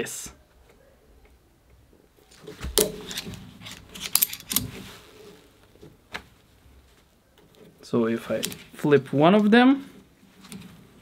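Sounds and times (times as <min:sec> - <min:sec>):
carabiners clinking: 0:02.3 - 0:04.9, 0:08.2 - 0:08.8
carabiner gates clicking: 0:02.4 - 0:04.8, 0:07.4 - 0:08.8.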